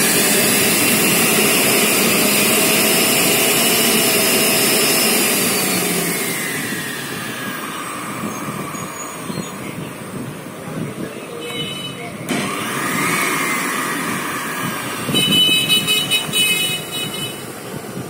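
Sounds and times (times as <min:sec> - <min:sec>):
juicer motor whining: 0:00.0 - 0:10.6, 0:12.3 - 0:18.0
high rattling whine: 0:00.0 - 0:11.1.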